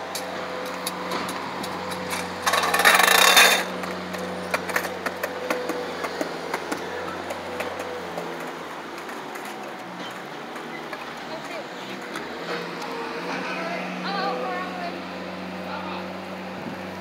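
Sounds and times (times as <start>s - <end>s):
wheels clacking over slab joints: 0.0s - 13.4s
wheels rushing on concrete: 0.0s - 17.0s.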